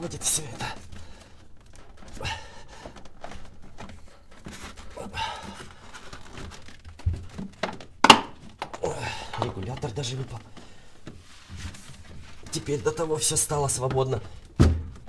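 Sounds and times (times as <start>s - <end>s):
plastic knocking and scraping: 0.0s - 15.0s
sharp plastic clack: 7.6s - 8.8s
dull thump: 14.6s - 15.0s.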